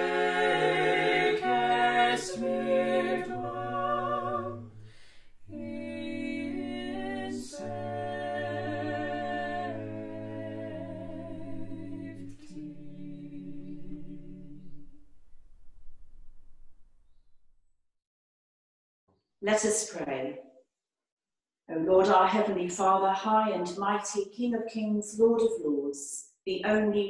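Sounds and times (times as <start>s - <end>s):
vocal quartet singing in harmony: 0.0s - 15.1s.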